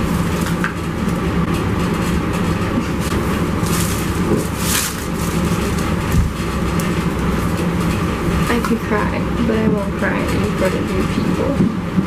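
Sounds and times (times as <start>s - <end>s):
low rumbling hum: 0.0s - 12.0s
plastic and paper rustling: 2.8s - 8.0s.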